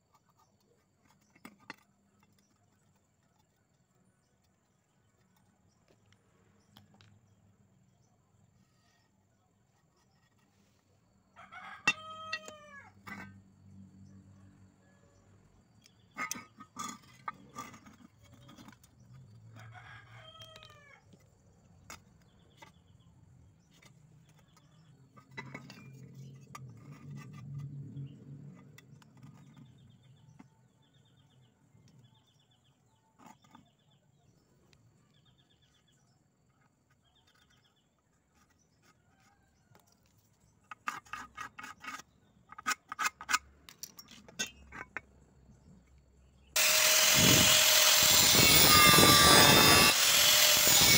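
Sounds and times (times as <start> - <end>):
rooster crowing: 11.4 - 13.0.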